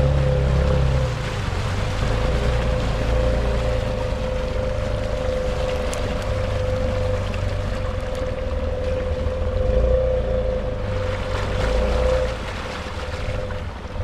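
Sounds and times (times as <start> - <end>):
atv engine running with whine: 0.0 - 14.0.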